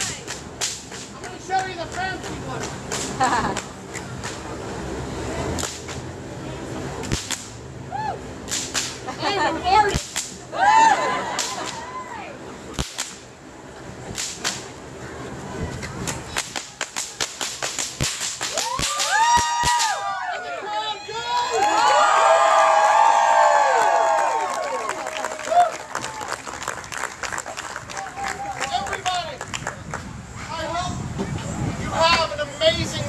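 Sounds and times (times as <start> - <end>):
fire whip cracking: 0.0 - 1.2, 2.6 - 4.5, 5.5 - 6.1, 7.0 - 7.6, 8.4 - 9.2, 9.9 - 10.4, 11.2 - 11.9, 12.7 - 13.3, 14.0 - 14.8, 16.0 - 20.0.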